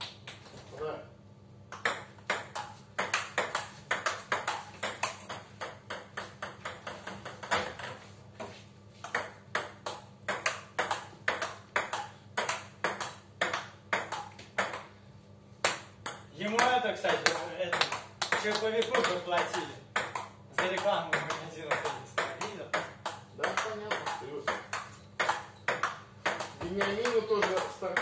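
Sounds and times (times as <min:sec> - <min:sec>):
table tennis ball clicks: 0:09.0 - 0:14.9, 0:15.6 - 0:28.0.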